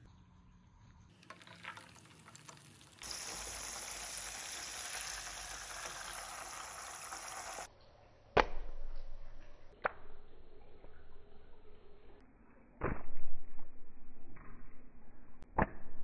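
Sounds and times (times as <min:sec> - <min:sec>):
chicken sizzling in hot oil: 0:01.2 - 0:07.7.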